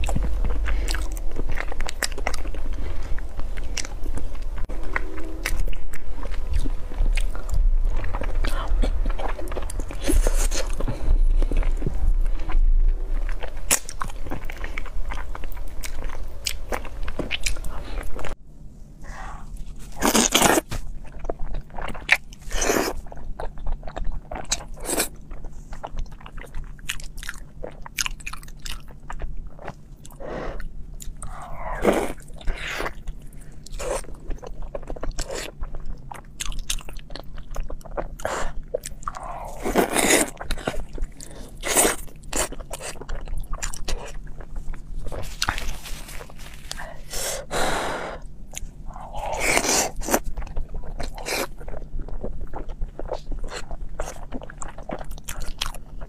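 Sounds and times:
chewing and lip-smacking: 0:32.1 - 0:46.8, 0:48.5 - 0:56.0.

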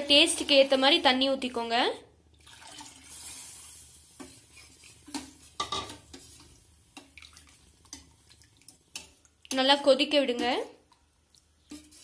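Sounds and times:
water pouring into pot: 0:02.3 - 0:04.1, 0:06.9 - 0:09.0
ladle stirring and clinking pot: 0:04.2 - 0:12.0.

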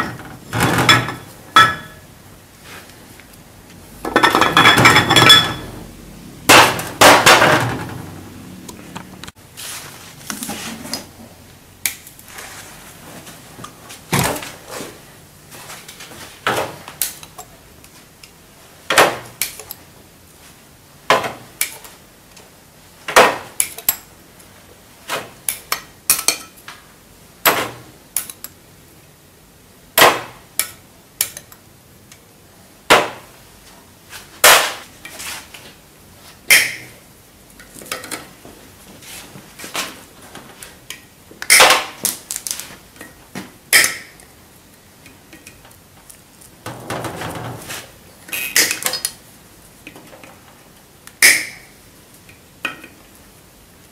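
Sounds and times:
metal tools clinking on metal: 0:04.1 - 0:05.7.

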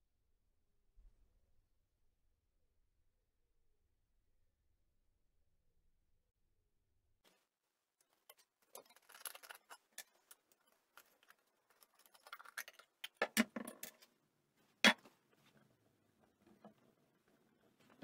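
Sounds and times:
screwdriver metal clicks and scrapes: 0:08.0 - 0:14.1.

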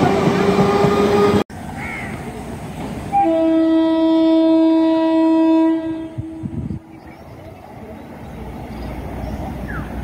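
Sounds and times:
train horn blast: 0:03.1 - 0:06.9.

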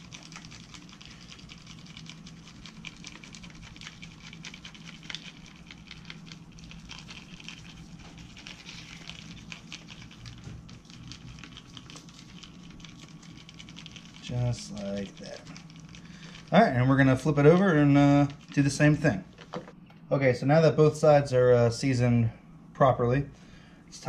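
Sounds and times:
granules pattering from shaker: 0:00.0 - 0:19.0.

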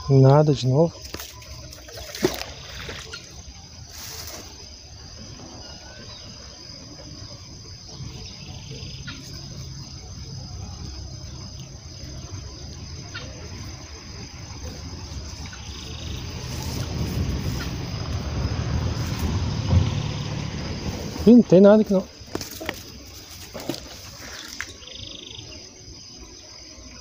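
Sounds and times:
high-pitched insect chorus: 0:00.0 - 0:27.0
low rumble: 0:14.2 - 0:22.2.

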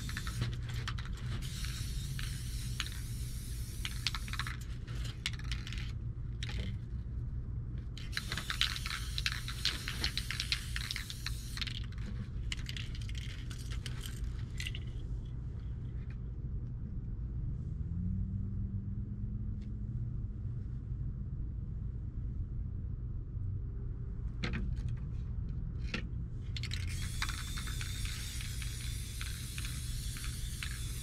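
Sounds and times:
spray can hissing: 0:00.0 - 0:00.5, 0:01.4 - 0:04.5, 0:08.1 - 0:11.8, 0:26.7 - 0:31.0
spray can mixing ball rattling: 0:00.0 - 0:05.9, 0:08.0 - 0:14.9, 0:26.6 - 0:31.0
steady low hum: 0:00.0 - 0:31.0.

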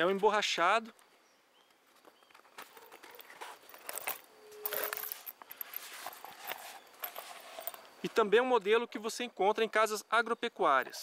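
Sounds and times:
metal buckles clinking: 0:02.6 - 0:07.9.

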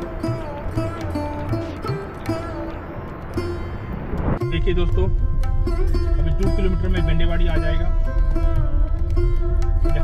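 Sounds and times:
plucked string melody: 0:00.0 - 0:10.0
steady drone: 0:00.0 - 0:10.0
low rumble: 0:02.9 - 0:10.0.

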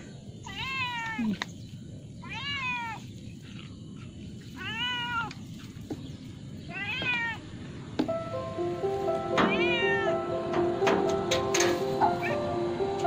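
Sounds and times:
cat meowing: 0:00.5 - 0:01.4, 0:02.2 - 0:03.0, 0:04.6 - 0:05.4, 0:06.7 - 0:07.4, 0:09.5 - 0:10.2.

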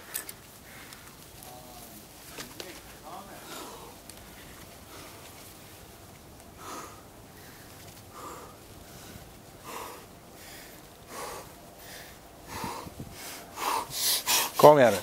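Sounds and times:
person breathing hard: 0:03.4 - 0:05.3, 0:06.5 - 0:14.6.

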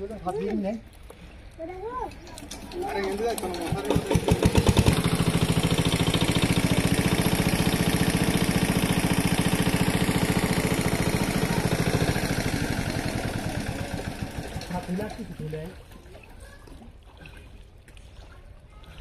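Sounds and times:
small pump engine running: 0:02.4 - 0:16.0.

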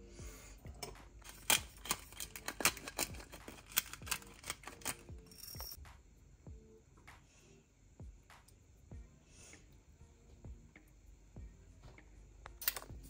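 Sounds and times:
utensils clicking and tapping: 0:00.7 - 0:05.8, 0:12.6 - 0:13.0.

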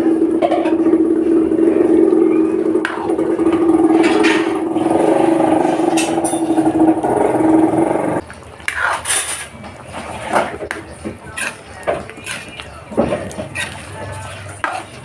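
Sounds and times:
engine running with rough hum: 0:00.0 - 0:08.2.

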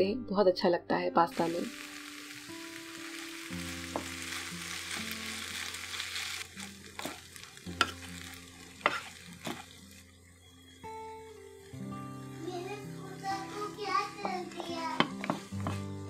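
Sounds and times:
pasta sizzling in oil: 0:01.3 - 0:16.0
wooden spatula knocking pan: 0:14.2 - 0:15.8.

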